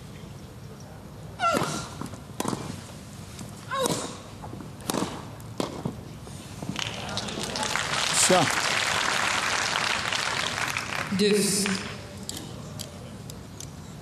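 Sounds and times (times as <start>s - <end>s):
rackets striking tennis ball: 1.4s - 6.8s.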